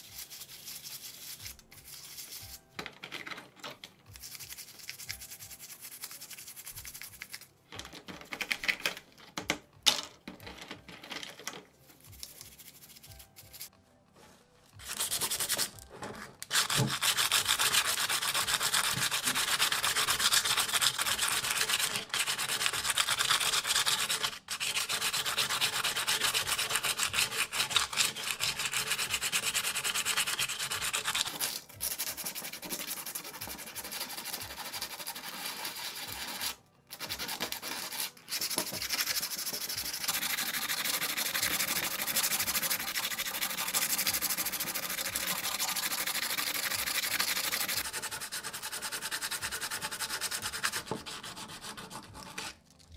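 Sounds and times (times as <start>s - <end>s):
sandpaper rubbing on metal: 0.0s - 2.6s, 16.5s - 52.6s.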